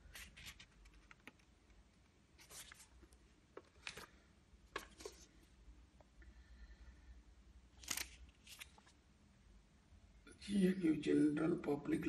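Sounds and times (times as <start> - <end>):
paper rustling: 0.0 - 1.5, 2.4 - 5.4, 7.8 - 9.0.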